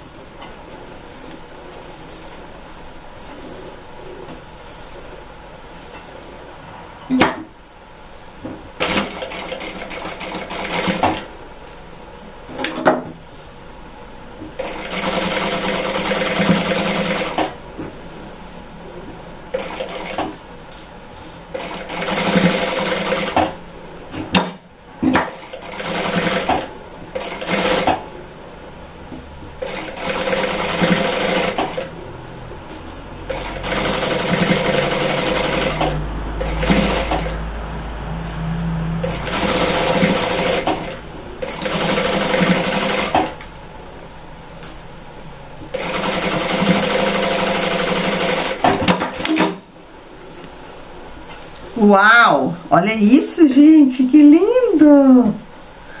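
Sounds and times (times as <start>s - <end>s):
sewing machine running: 8.8s - 11.3s, 14.6s - 17.6s, 19.5s - 20.2s, 21.5s - 23.6s, 25.3s - 28.0s, 29.6s - 31.9s, 33.3s - 37.4s, 39.0s - 43.4s, 45.7s - 49.4s.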